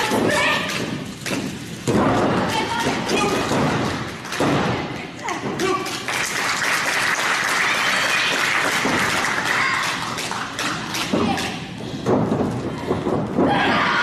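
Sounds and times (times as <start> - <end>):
crowd clapping: 5.6 - 11.5.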